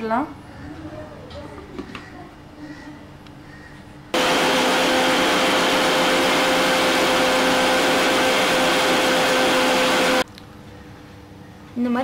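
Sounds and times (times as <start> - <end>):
mixer-grinder motor whirring: 4.2 - 10.2.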